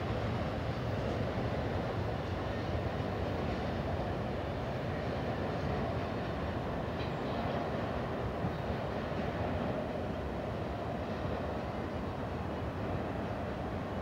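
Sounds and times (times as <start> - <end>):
freight train wheels rumbling: 0.0 - 14.0.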